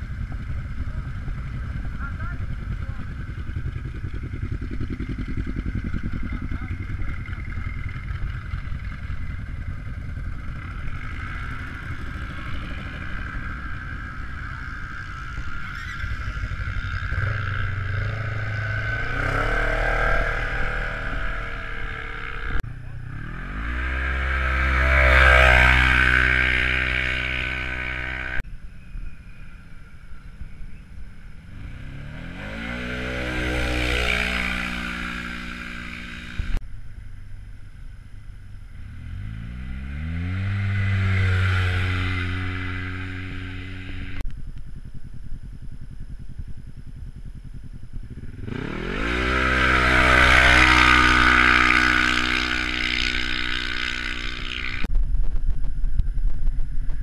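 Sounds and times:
engines revving and accelerating: 10.4s - 28.4s, 31.5s - 36.6s, 38.8s - 44.2s, 48.3s - 54.9s.

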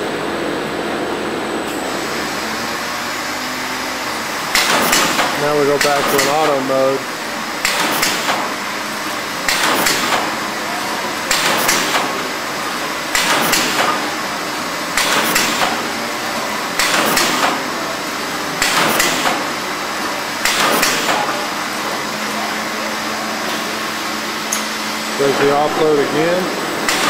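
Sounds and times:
machine hum: 0.0s - 27.0s
sharp mechanical clacks of cutter: 4.5s - 6.7s, 7.6s - 8.5s, 9.4s - 10.4s, 11.3s - 12.2s, 13.1s - 14.1s, 14.9s - 15.8s, 16.8s - 17.7s, 18.6s - 19.5s, 20.4s - 21.4s.

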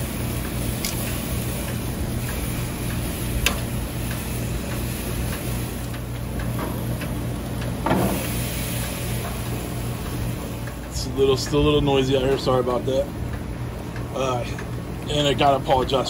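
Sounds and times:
steady low hum: 0.0s - 16.0s
metal tongs clicking on grill grates: 0.4s - 11.6s
steak press thud: 7.8s - 8.3s.

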